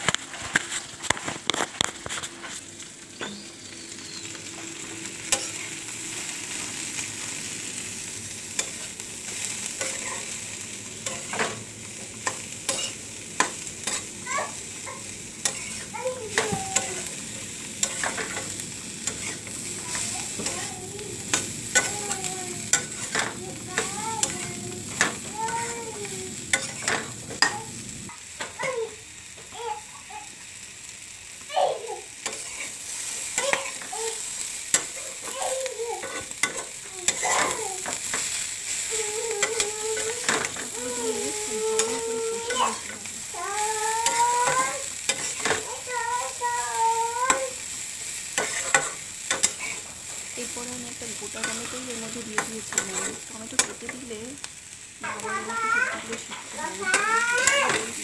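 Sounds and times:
vegetables sizzling in oil: 0.0 - 58.0
spatula scraping metal pan: 48.4 - 49.8.

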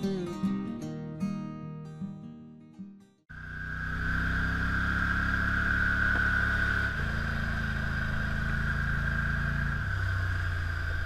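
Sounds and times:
atv engine running: 3.3 - 11.0
steady high whine: 3.3 - 11.0.

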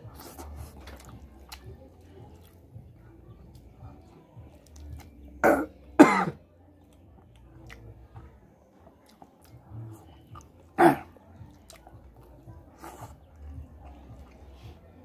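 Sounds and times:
mouth sounds of eating: 0.0 - 15.0
man clearing his throat: 5.4 - 6.4, 10.8 - 11.1.

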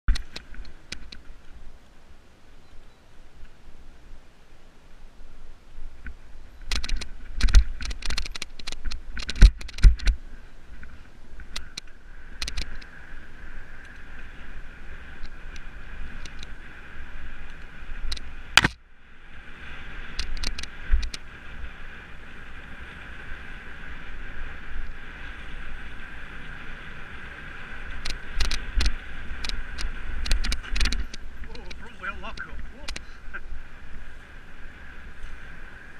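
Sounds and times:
bike tyres buzzing on dirt: 0.1 - 35.9
bike rattling over rocks: 6.0 - 18.8, 19.9 - 35.9.

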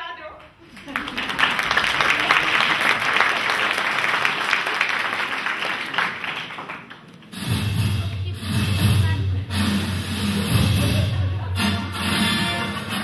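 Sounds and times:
audience applauding: 0.6 - 7.3.

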